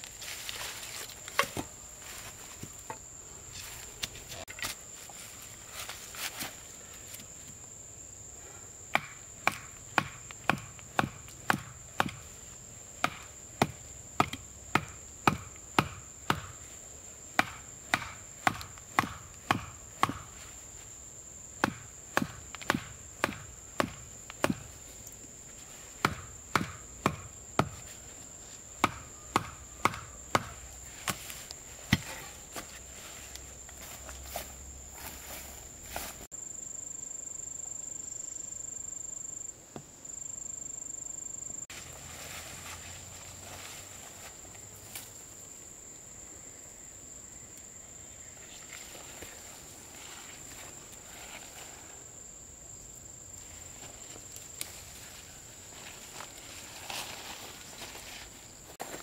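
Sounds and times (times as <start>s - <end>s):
high insect drone: 0.0s - 59.0s
chopping wood: 8.9s - 12.3s, 13.0s - 16.6s, 17.4s - 20.4s, 21.6s - 24.7s, 26.0s - 27.9s, 28.8s - 31.3s, 31.9s - 32.2s.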